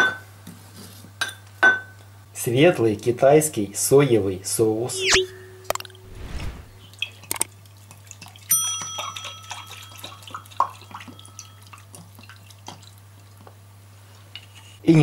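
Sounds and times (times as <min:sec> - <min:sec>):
low hum: 0:04.9 - 0:06.8.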